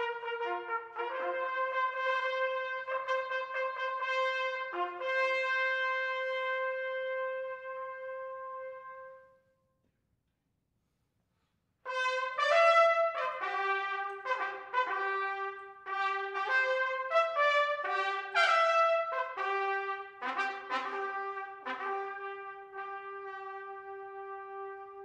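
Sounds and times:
trumpet ensemble playing: 0.0s - 9.4s, 11.9s - 25.0s.

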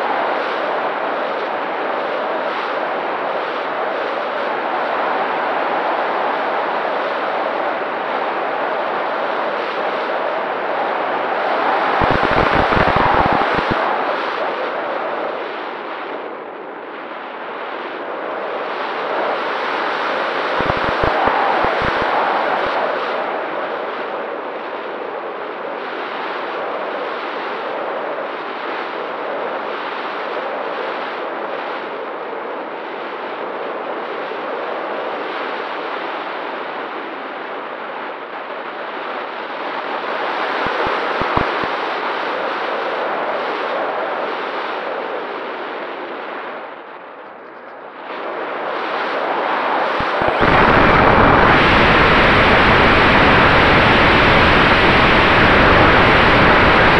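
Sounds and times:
wind buffeting camera: 11.9s - 14.5s, 20.2s - 23.2s, 40.4s - 41.9s, 44.9s - 56.9s.

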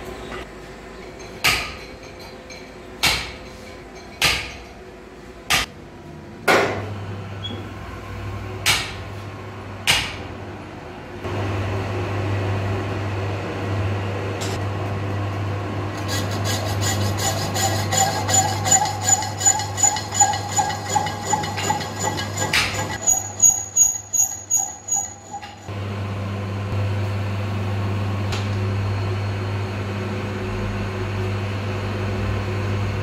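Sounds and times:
lathe running with low hum: 10.9s - 33.0s.

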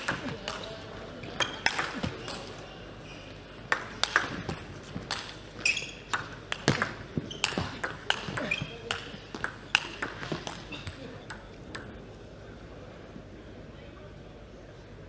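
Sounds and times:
shoes squeaking on floor: 5.6s - 6.1s, 7.1s - 10.5s
table tennis ball clicks: 6.1s - 12.0s.

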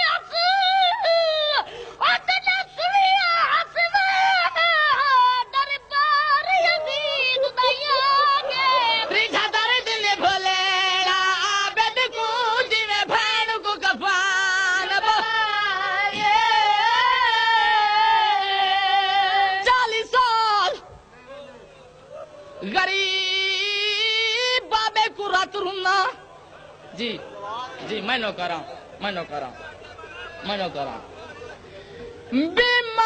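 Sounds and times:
high-pitched voice singing lament: 0.0s - 10.9s.

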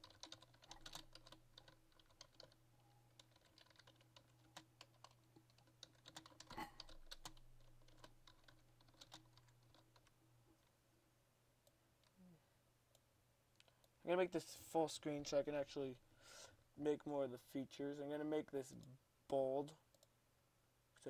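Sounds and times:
typing on a keyboard: 0.0s - 10.2s.

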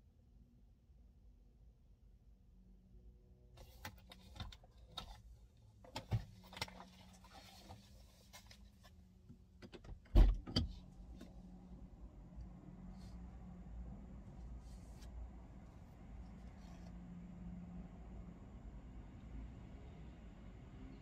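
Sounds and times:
low steady hum: 0.0s - 21.0s
clicks and knocks in car cabin: 5.8s - 7.3s, 8.2s - 11.4s.

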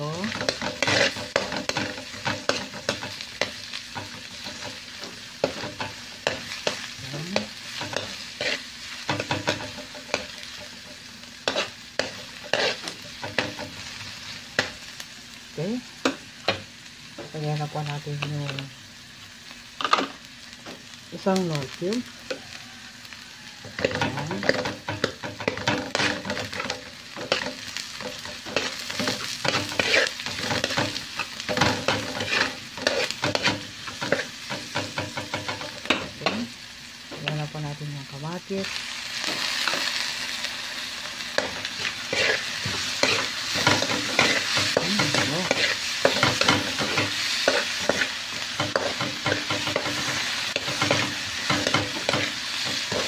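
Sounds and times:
onion and garlic sizzling in oil: 0.0s - 53.0s
metal spatula scraping wok: 0.1s - 14.0s, 23.7s - 36.4s, 41.2s - 53.0s.

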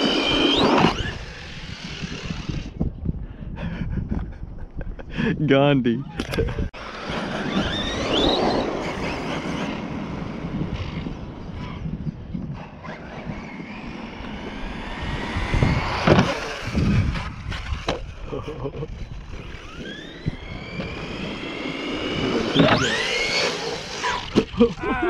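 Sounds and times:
toy truck motor whining: 0.0s - 2.8s, 6.8s - 10.0s, 12.6s - 18.1s, 18.9s - 24.5s.

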